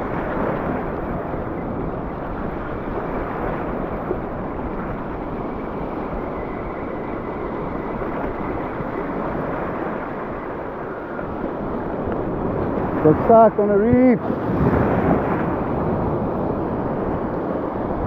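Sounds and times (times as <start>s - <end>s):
wind on microphone: 0.0s - 18.0s
waves washing over rocks: 7.5s - 18.0s.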